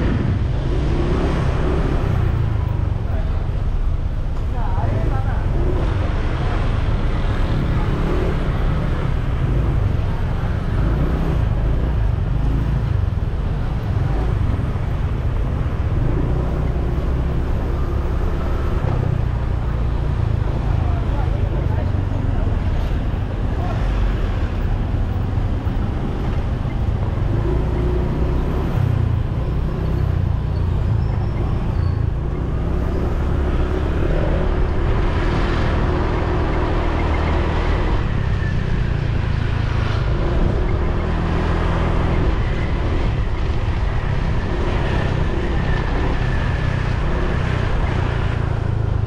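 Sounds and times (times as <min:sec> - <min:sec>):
passing cars and scooters: 0:00.0 - 0:49.0.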